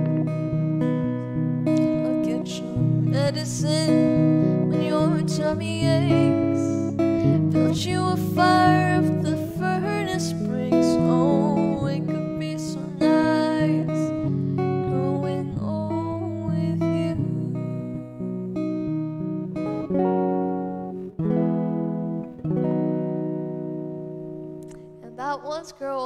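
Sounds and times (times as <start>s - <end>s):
electric guitar strumming chords: 0.0s - 26.0s
girl singing: 1.7s - 19.1s, 24.7s - 26.0s.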